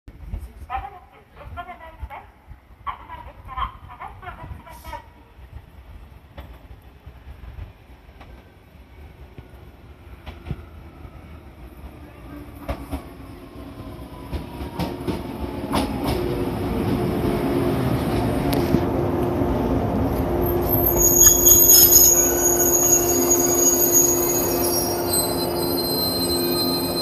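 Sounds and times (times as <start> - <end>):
electric train slowing: 9.1 - 27.0
train brake squeal: 20.5 - 27.0.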